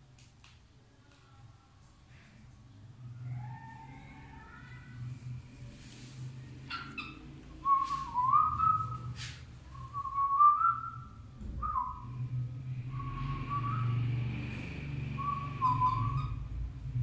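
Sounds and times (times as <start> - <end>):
cockatiel whistling: 6.7 - 9.2, 15.2 - 16.5.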